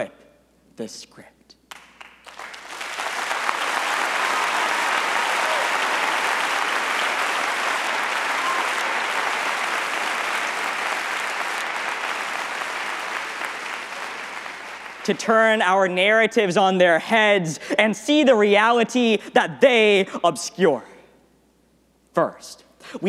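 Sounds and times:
large audience applauding: 0:01.7 - 0:15.7.

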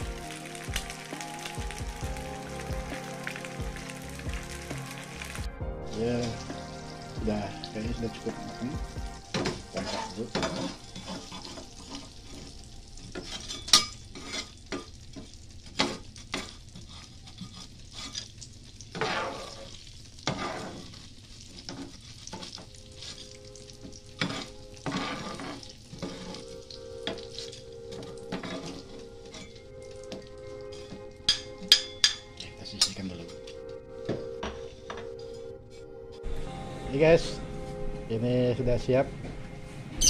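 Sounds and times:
fish sizzling in hot oil: 0:00.0 - 0:34.0
metal spatula scraping pan: 0:09.3 - 0:14.9, 0:15.8 - 0:18.3, 0:18.9 - 0:23.3, 0:24.1 - 0:32.2.

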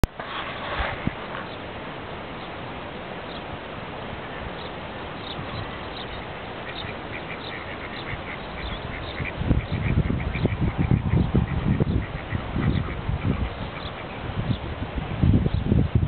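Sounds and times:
background hiss: 0:00.0 - 0:15.9
ducks calling: 0:04.6 - 0:14.2.

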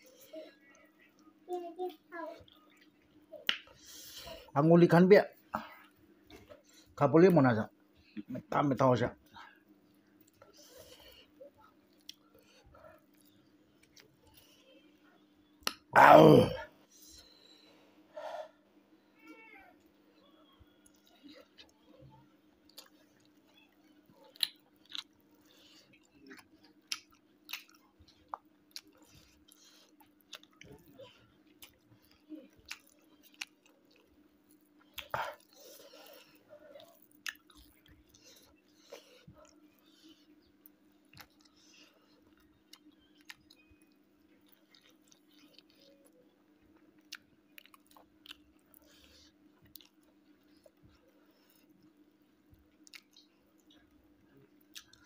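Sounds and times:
faint steady hum: 0:00.0 - 0:55.0
person chewing food: 0:09.3 - 0:14.9, 0:20.2 - 0:55.0
crunch of food: 0:22.6 - 0:40.1, 0:46.8 - 0:51.8, 0:54.6 - 0:55.0.

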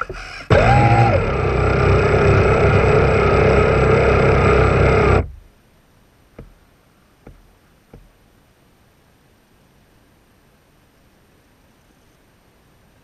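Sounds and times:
model boat motor whining: 0:00.0 - 0:05.4
faint hiss: 0:05.3 - 0:13.0.

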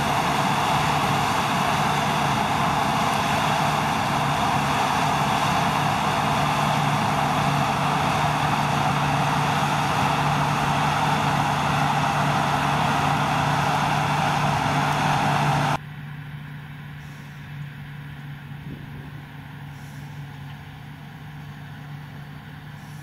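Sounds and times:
threshing machinery rushing: 0:00.0 - 0:15.8
combine harvester engine hum: 0:00.0 - 0:23.0.

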